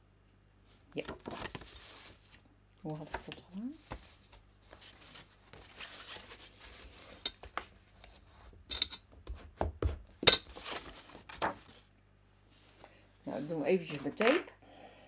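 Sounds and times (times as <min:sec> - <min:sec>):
paper rustling: 0:01.2 - 0:02.4, 0:03.0 - 0:07.7, 0:10.5 - 0:11.9.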